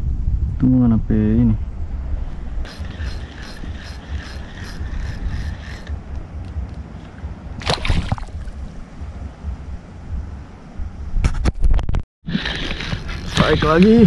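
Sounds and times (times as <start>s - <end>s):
wind on microphone: 0.0s - 14.0s
fishing reel whine: 2.7s - 6.0s
splash on water: 7.6s - 8.6s.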